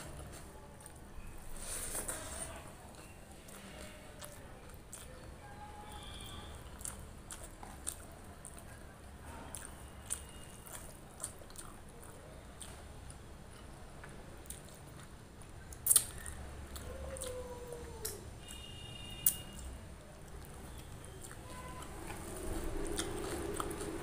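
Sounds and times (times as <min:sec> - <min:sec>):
chewing and wet mouth sounds: 0:00.0 - 0:24.0.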